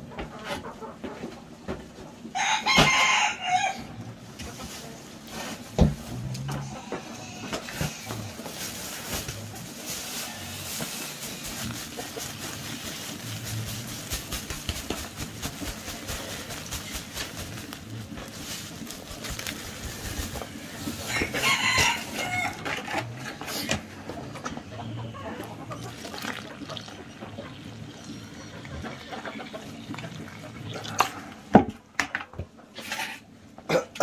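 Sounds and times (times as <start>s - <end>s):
rooster crowing: 2.3s - 4.0s, 21.0s - 23.0s
dry feed pouring into plastic bucket: 7.8s - 22.8s, 25.8s - 27.0s
water pouring onto feed: 8.4s - 22.8s, 25.6s - 31.4s.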